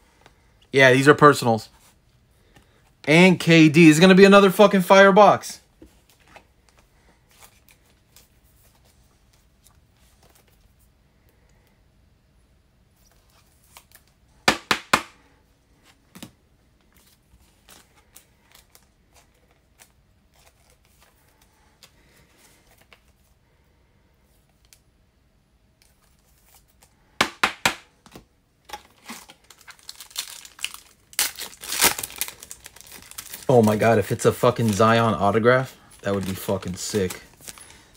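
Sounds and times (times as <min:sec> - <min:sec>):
cards rustling: 0:05.7 - 0:10.9, 0:15.7 - 0:23.4, 0:28.0 - 0:37.9
sharp clicks of card packs: 0:27.5 - 0:37.9.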